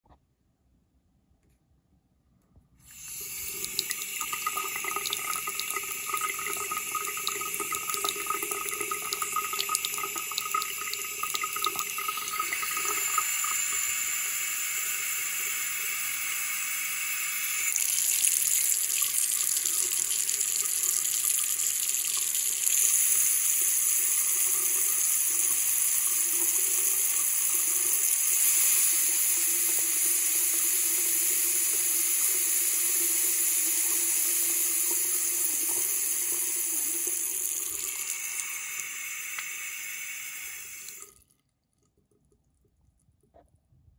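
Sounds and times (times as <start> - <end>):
tap water running into sink: 2.9 - 43.4.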